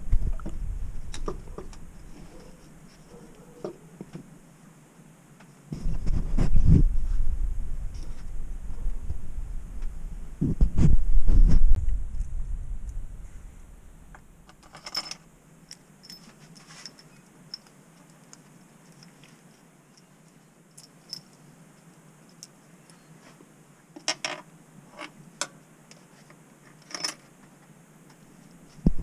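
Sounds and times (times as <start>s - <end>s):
metal tools and bolts clinking: 14.5s - 17.7s, 20.8s - 21.4s, 26.8s - 27.3s.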